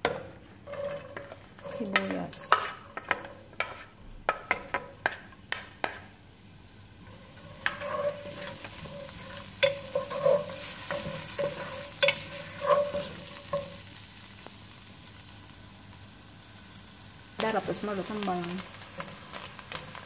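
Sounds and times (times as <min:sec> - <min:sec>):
spatula tapping pot: 0:00.0 - 0:06.0, 0:07.6 - 0:13.8
spatula scraping pan: 0:00.0 - 0:06.2, 0:07.0 - 0:13.8
onion sizzling in oil: 0:00.0 - 0:20.0.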